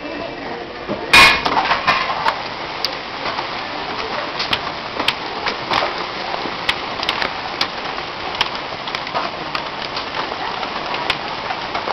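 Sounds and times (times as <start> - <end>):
hail and rain hissing: 1.1 - 11.9
hailstones cracking: 1.1 - 11.9.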